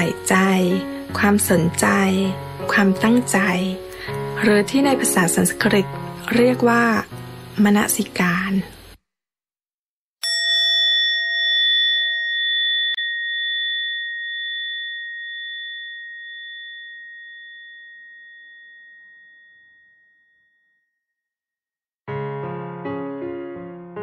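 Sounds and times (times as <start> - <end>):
meditation bell ringing: 10.2 - 21.2.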